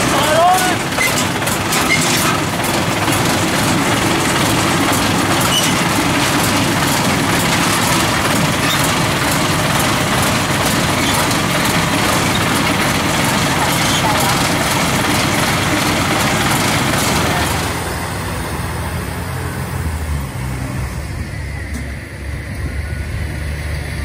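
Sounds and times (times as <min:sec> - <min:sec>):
tracks clanking on steel ramps: 0:00.0 - 0:17.9
diesel engine running: 0:00.0 - 0:24.0.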